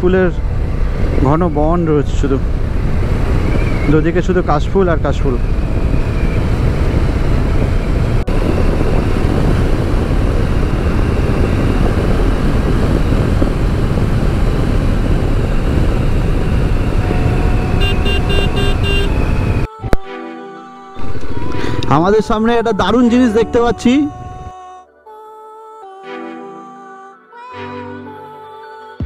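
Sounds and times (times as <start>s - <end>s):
wind and road noise: 0.0s - 20.0s, 21.0s - 24.5s
motorcycle engine running: 5.4s - 19.7s.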